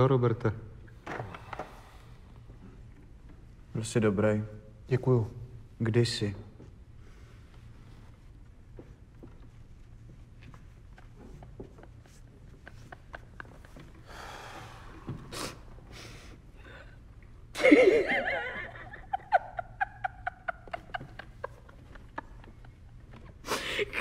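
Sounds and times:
person hissing breathily: 14.0 - 16.8, 23.4 - 24.0.

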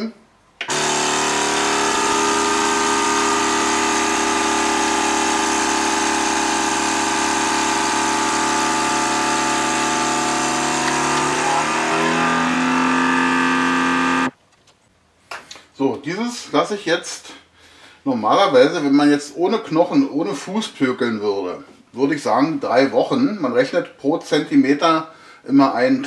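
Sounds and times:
vacuum sealer pump running: 0.6 - 14.3.

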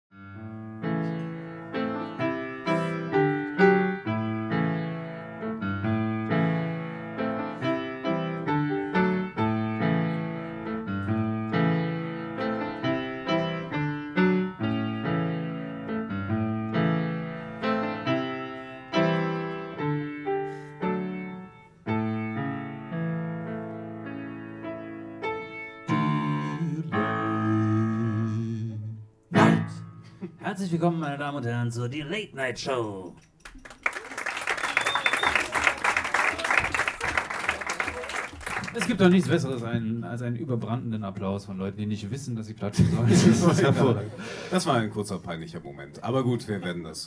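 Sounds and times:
solo piano music: 0.1 - 30.0.

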